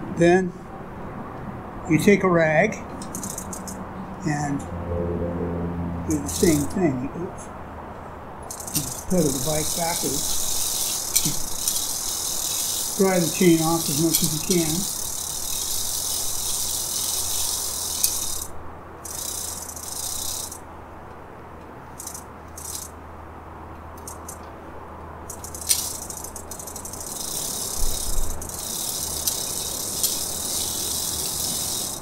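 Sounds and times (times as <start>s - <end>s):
bicycle chain clicking rattle: 3.0s - 3.8s, 6.1s - 6.8s, 8.4s - 20.6s, 22.0s - 22.9s, 24.0s - 24.4s, 25.2s - 32.0s.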